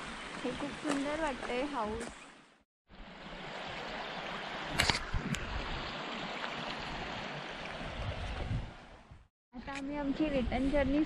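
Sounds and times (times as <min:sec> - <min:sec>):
stream running over stones: 0:00.0 - 0:09.1.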